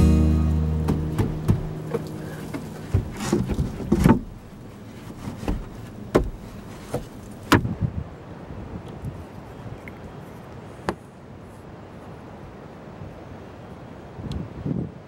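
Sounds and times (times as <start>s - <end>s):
wooden cabinet knocking and scraping: 2.5s - 4.4s.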